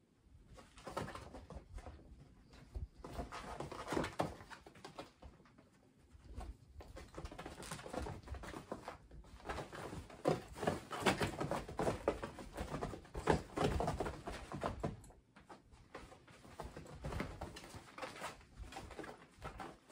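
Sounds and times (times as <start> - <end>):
kittens' paws thumping on fabric: 6.2 - 19.9.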